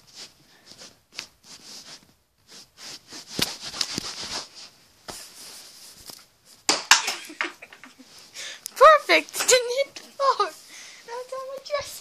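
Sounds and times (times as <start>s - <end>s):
rustling handling noise: 0.0s - 6.7s.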